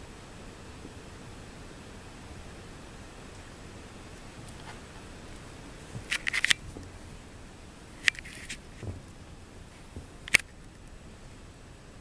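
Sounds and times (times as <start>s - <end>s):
paws and claws clicking and scuffing: 4.4s - 7.0s.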